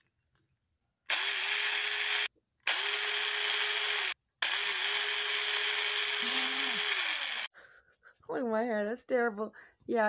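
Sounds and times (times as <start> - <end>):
mini chainsaw whining: 1.1 - 7.5.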